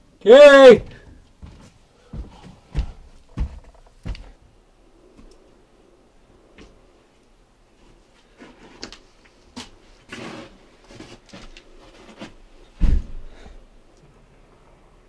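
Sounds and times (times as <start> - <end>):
dull footsteps: 0.7 - 5.4.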